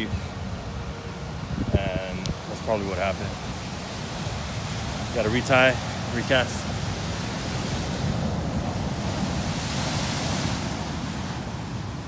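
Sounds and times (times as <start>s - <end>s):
ocean surf washing on shore: 0.0s - 12.0s
wind rumbling on microphone: 0.0s - 12.0s.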